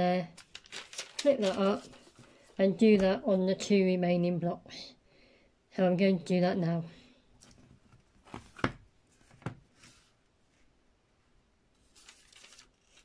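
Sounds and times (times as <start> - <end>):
soft paper rustle: 0.2 - 3.2, 11.7 - 13.0.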